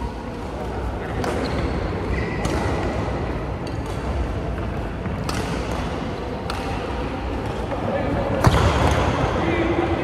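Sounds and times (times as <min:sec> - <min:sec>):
low rumble of sports hall: 0:00.0 - 0:10.0
rackets striking shuttlecocks: 0:05.0 - 0:07.0.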